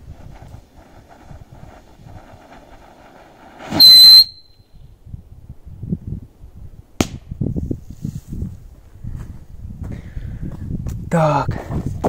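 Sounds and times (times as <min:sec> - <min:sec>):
firecracker fuse hissing: 0:00.0 - 0:04.4
firecracker bursting: 0:00.0 - 0:04.5.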